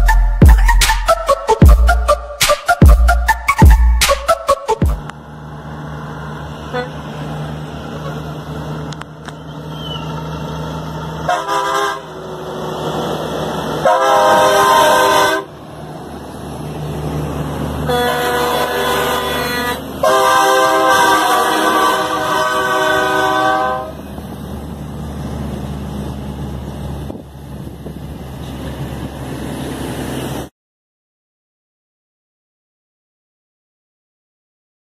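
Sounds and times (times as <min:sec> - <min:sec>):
truck air horns blowing: 0:00.0 - 0:05.1, 0:06.6 - 0:07.1, 0:11.2 - 0:12.4, 0:13.7 - 0:15.6, 0:17.8 - 0:24.1
diesel engines running: 0:00.0 - 0:30.5.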